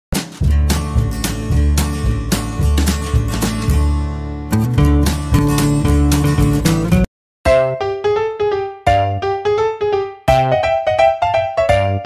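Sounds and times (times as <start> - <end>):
keyboard playing quick melody: 4.5 - 12.0.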